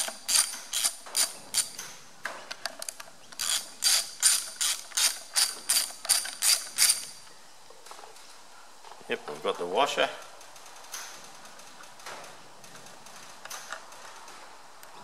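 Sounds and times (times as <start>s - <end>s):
socket ratchet clicking: 0.0s - 1.8s, 3.4s - 7.1s.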